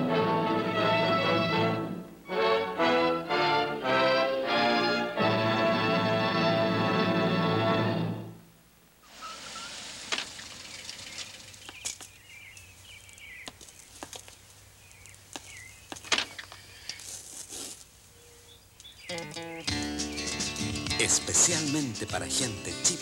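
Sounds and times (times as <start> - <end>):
music: 0.0 - 8.4, 19.1 - 23.0
birds chirping: 9.1 - 17.2, 18.0 - 23.0
high heels clicking on pavement: 11.6 - 17.7.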